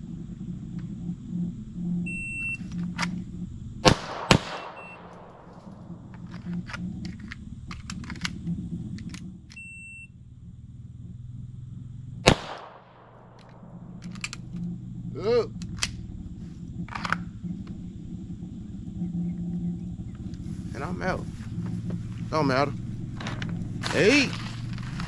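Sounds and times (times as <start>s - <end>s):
pistol shots: 3.8s - 5.6s, 12.2s - 13.6s.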